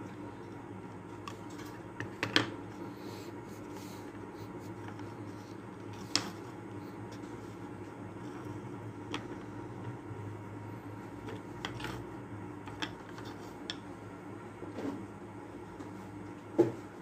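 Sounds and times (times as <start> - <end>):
steady low hum: 0.0 - 17.0
wooden strips clicking and tapping: 12.6 - 13.9.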